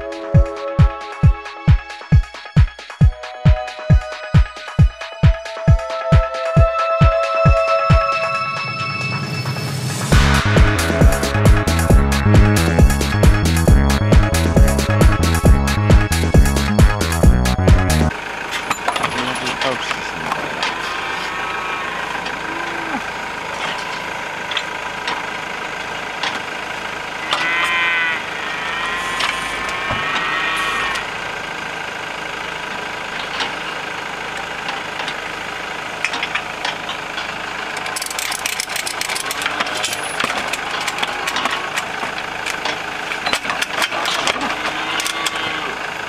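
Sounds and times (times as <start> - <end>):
vehicle engine idling: 9.1 - 46.0
sharp metal clanks: 18.5 - 20.8, 36.0 - 45.2
cow bellowing: 20.3 - 24.1, 27.2 - 31.2, 39.2 - 42.2, 43.9 - 45.9.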